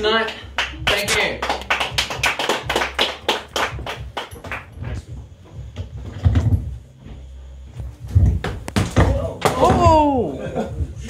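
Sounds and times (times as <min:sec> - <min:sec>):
audience clapping: 0:00.2 - 0:04.7.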